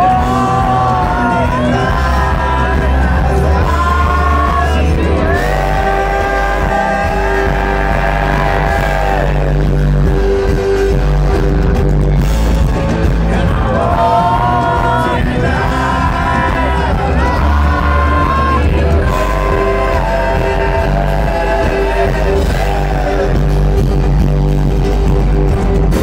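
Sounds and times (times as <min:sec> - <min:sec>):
voices singing held notes: 0:00.0 - 0:09.6, 0:13.2 - 0:23.9
live rock band: 0:00.0 - 0:26.0.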